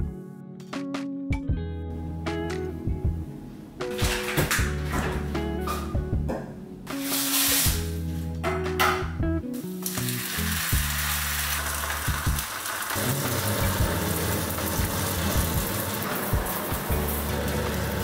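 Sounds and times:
background music: 0:00.0 - 0:18.0
pancake sizzling in a pan: 0:09.8 - 0:18.0.

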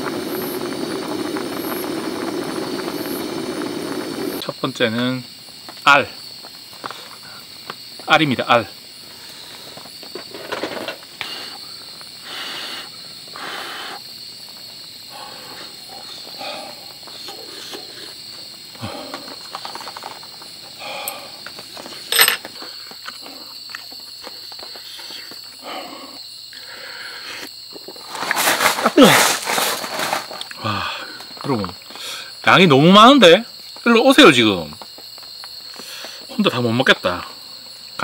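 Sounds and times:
crickets chirring: 0:00.0 - 0:38.0
close eating noises: 0:11.2 - 0:28.3.

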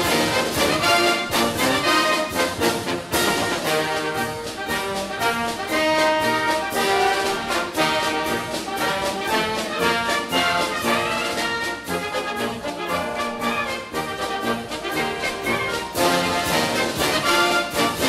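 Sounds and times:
orchestral music led by brass: 0:00.0 - 0:18.0.

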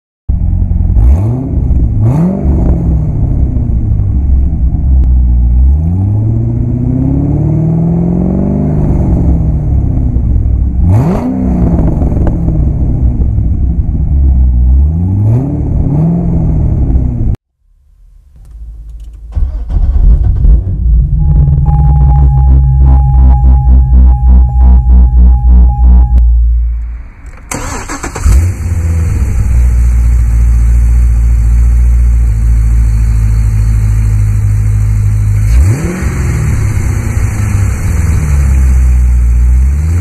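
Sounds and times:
car engine revving: 0:00.5 - 0:04.2, 0:04.8 - 0:17.4, 0:18.5 - 0:40.0
low rhythmic throb: 0:20.8 - 0:26.9.

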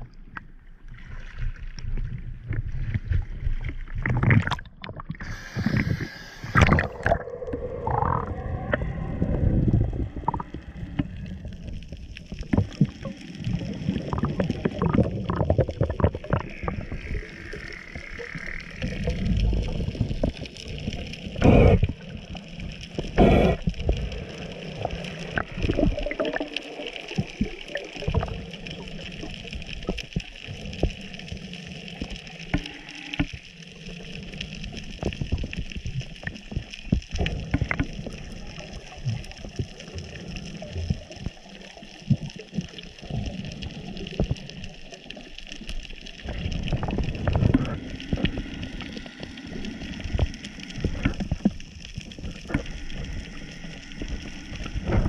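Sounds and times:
low rumble: 0:01.7 - 0:30.1
muffled underwater noise: 0:02.3 - 0:55.0
clicks and crackling: 0:10.2 - 0:55.0.

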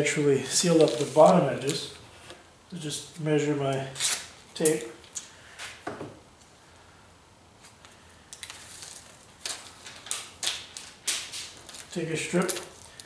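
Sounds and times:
foil tape peeling off roll: 0:04.0 - 0:04.3, 0:08.3 - 0:13.0.

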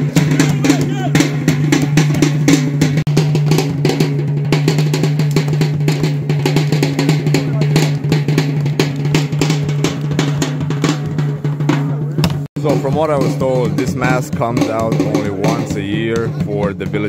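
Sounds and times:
fast irregular drumming: 0:00.0 - 0:17.0.

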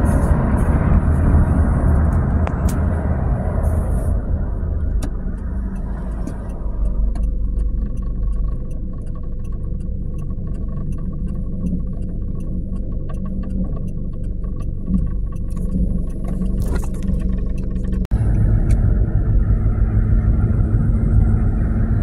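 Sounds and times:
car engine and road rumble: 0:00.0 - 0:22.0
regular light ticking: 0:00.5 - 0:18.1.

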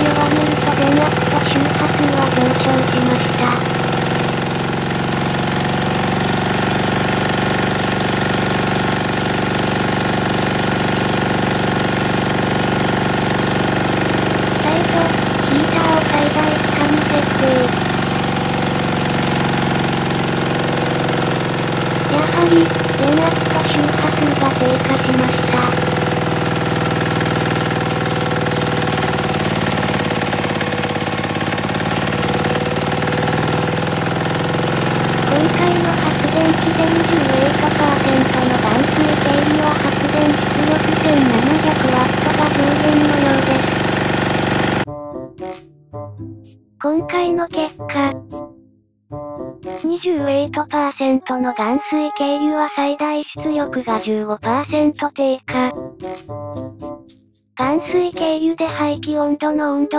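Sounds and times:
diesel generator running: 0:00.0 - 0:44.9.

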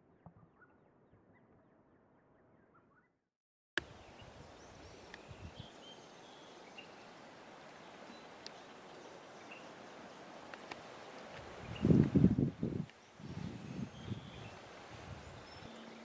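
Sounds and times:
steady outdoor hiss: 0:03.8 - 0:16.0.

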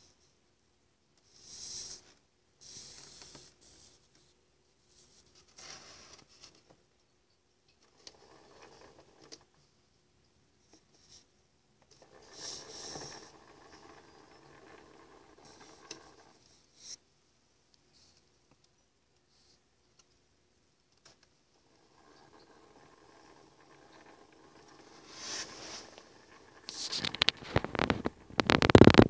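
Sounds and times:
rustling and scraping: 0:04.9 - 0:06.8, 0:07.8 - 0:09.5, 0:11.9 - 0:17.0, 0:21.0 - 0:29.0.

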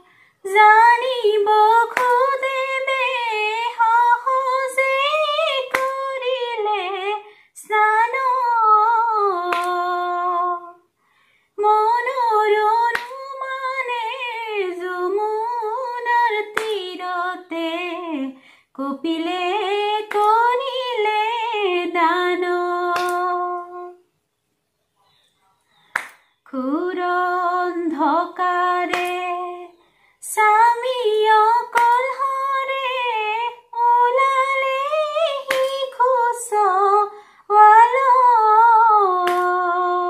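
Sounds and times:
woman singing unaccompanied: 0:00.0 - 0:10.9, 0:11.6 - 0:24.1, 0:26.4 - 0:40.0
sharp hand claps: 0:01.8 - 0:02.5, 0:05.6 - 0:06.2, 0:09.5 - 0:09.9, 0:12.9 - 0:13.4, 0:16.5 - 0:16.8, 0:20.1 - 0:20.6, 0:22.9 - 0:23.4, 0:25.9 - 0:26.6, 0:28.9 - 0:29.4, 0:31.7 - 0:32.2, 0:35.5 - 0:36.0, 0:39.2 - 0:39.6.

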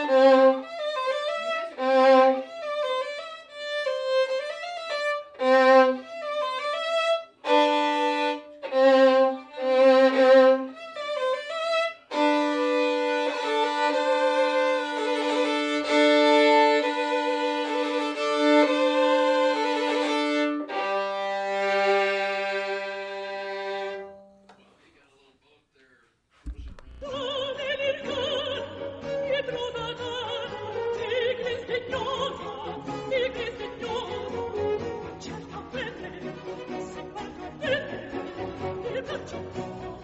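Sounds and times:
solo violin: 0:00.0 - 0:24.4, 0:26.5 - 0:40.0.

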